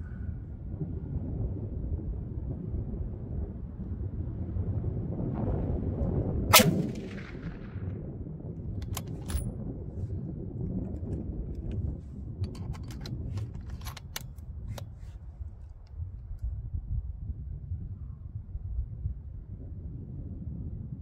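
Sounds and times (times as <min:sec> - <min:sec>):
rifle bolt metallic clicks: 0:06.5 - 0:07.3, 0:08.8 - 0:09.5, 0:12.5 - 0:14.9
rifle shot with rolling echo: 0:06.5 - 0:09.5.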